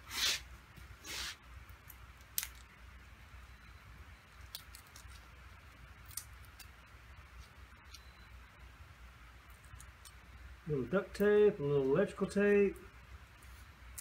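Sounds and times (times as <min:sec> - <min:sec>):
short scraping hisses: 0:00.0 - 0:01.5.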